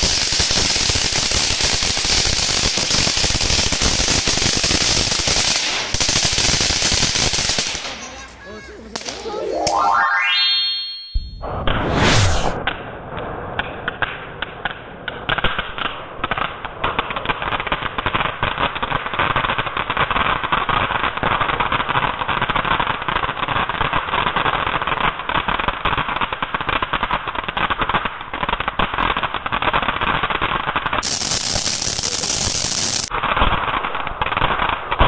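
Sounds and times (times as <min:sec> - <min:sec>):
firework fountain hissing and crackling: 0:00.0 - 0:09.5, 0:13.6 - 0:35.0
sharp high hiss: 0:31.0 - 0:33.1.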